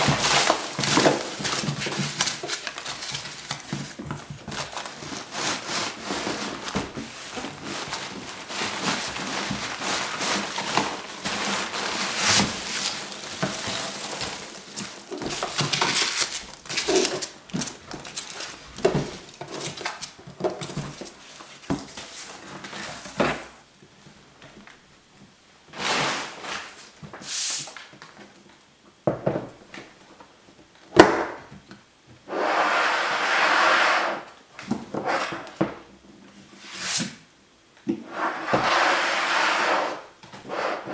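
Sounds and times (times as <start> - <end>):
rustling packing peanuts: 0.0 - 23.6.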